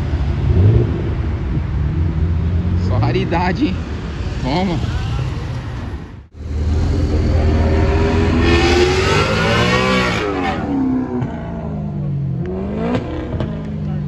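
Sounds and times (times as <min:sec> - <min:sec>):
car engine accelerating past: 0:06.4 - 0:13.8.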